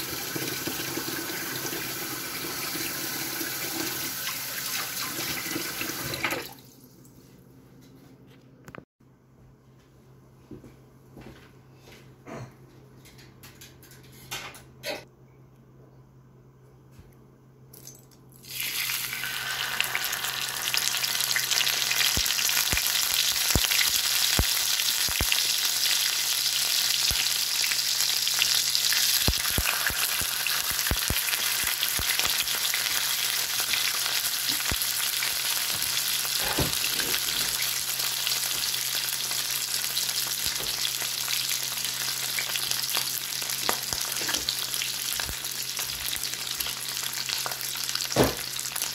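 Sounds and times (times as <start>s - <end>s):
fish sizzling in hot fat: 18.4s - 48.9s.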